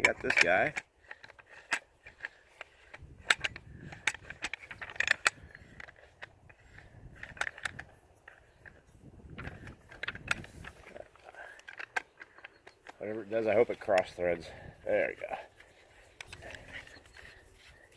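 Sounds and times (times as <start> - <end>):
rifle handling clicks and rustling: 0.0 - 17.9.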